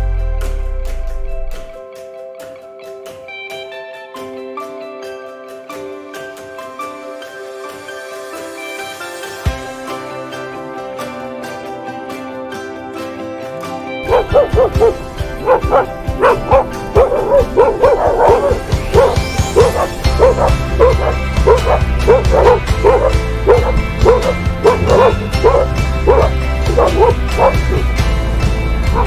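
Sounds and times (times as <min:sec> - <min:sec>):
background music with low notes: 0:00.0 - 0:29.0
animal yelping: 0:14.1 - 0:27.9.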